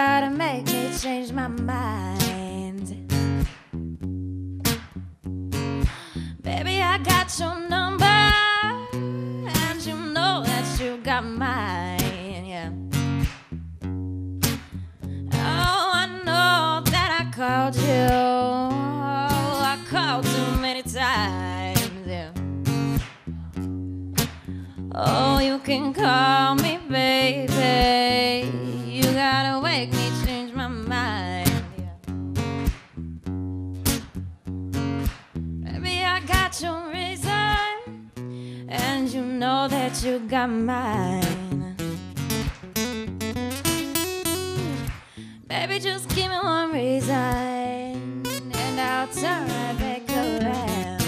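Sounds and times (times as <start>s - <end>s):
guitar and bass: 0.0s - 51.0s
person singing: 6.3s - 12.5s, 24.9s - 31.8s, 45.5s - 51.0s
person singing long notes: 48.4s - 51.0s.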